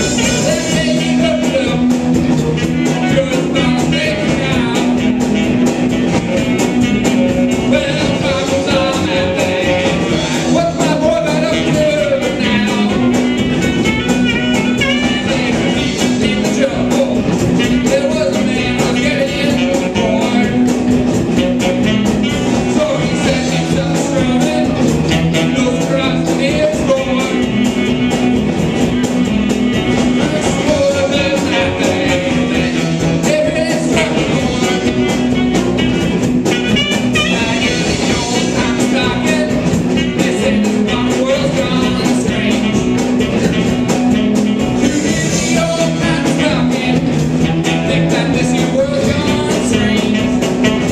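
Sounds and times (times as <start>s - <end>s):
man singing lead vocals: 0.0s - 35.6s, 36.4s - 50.9s
drums: 0.0s - 50.9s
electric bass: 0.0s - 50.9s
electric guitar: 0.0s - 50.9s
saxophone: 0.0s - 50.9s.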